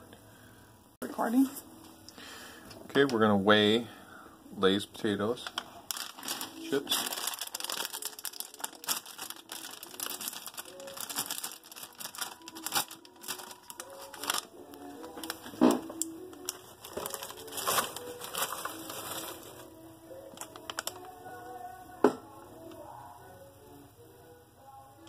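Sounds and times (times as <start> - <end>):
chip bag crinkling: 5.3 - 21.5
chips rattling: 5.9 - 14.5.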